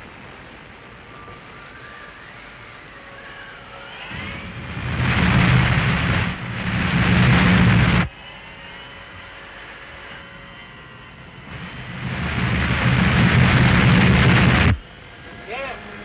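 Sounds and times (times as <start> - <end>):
faint hum: 0.0 - 16.0
rocket ship rumbling hissing drone: 3.2 - 15.2.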